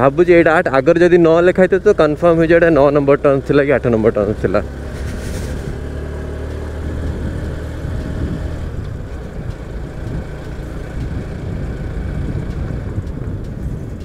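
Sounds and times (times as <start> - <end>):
motorcycle engine pulling uphill: 0.0 - 14.0.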